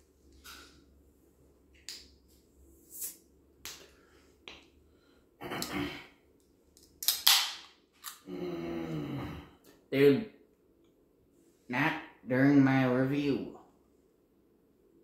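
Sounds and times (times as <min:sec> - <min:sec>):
person speaking: 0:11.7 - 0:13.6.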